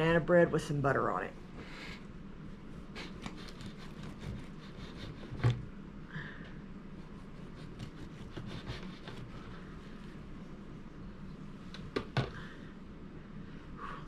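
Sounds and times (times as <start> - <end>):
knife sawing through bread: 2.9 - 5.6, 7.1 - 9.7.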